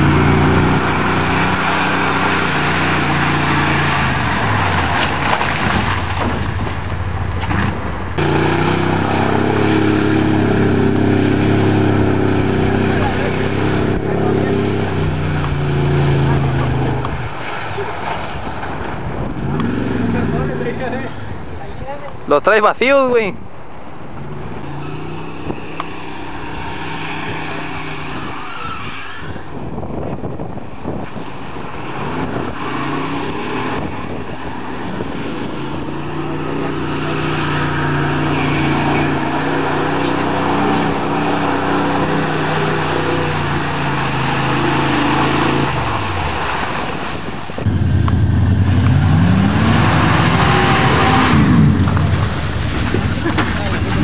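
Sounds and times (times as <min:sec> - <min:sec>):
pickup truck engines revving: 0:00.0 - 0:21.6, 0:23.6 - 0:54.0.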